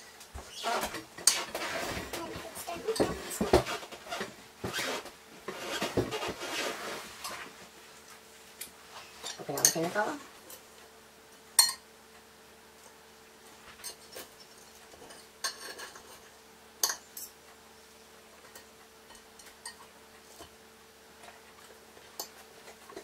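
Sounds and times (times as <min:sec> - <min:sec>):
faint steady hum: 0:00.0 - 0:23.0
cutlery clinking on plates: 0:11.6 - 0:11.8, 0:13.8 - 0:17.4, 0:18.4 - 0:20.5.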